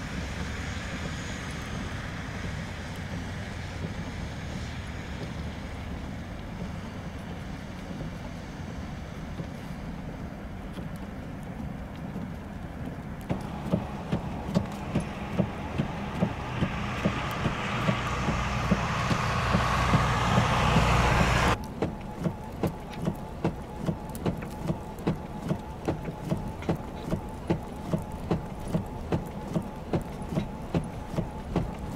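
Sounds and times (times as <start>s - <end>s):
truck driving on snow: 0.0s - 31.9s
regular ticking: 13.2s - 31.9s.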